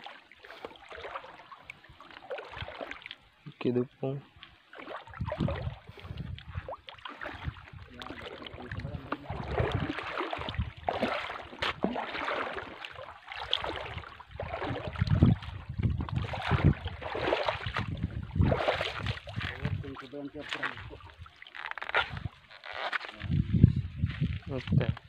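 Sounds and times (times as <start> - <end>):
seawater splashing around rocks: 4.7 - 22.2
wind rumbling on microphone: 5.0 - 11.9, 13.6 - 22.4, 23.1 - 25.0.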